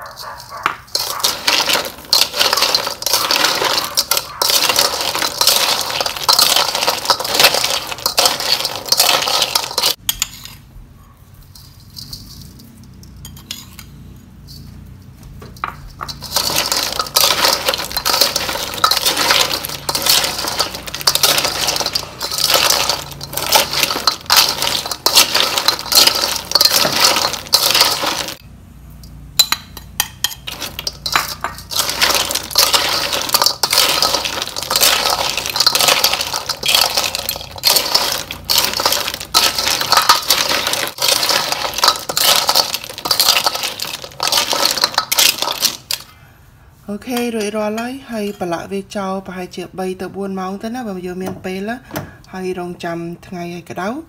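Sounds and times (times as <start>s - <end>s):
clam shells clattering in metal bowl: 0.0s - 10.4s, 11.6s - 13.7s, 15.5s - 28.4s, 29.4s - 46.1s.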